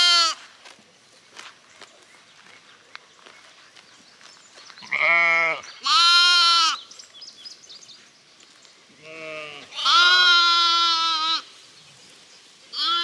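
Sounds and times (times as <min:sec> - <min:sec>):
sheep bleating: 0:00.0 - 0:00.4, 0:04.8 - 0:06.8, 0:09.0 - 0:11.5, 0:12.7 - 0:13.0.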